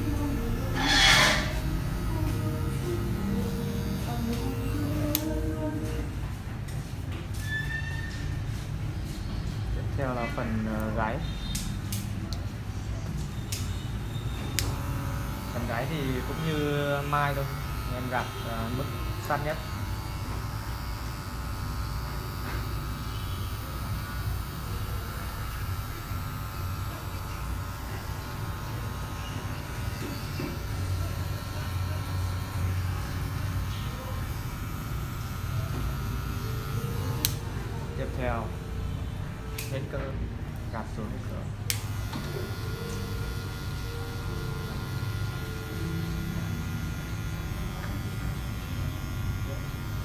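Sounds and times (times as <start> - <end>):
hair clipper buzzing: 0.0 - 6.0, 14.5 - 38.8, 41.6 - 50.0.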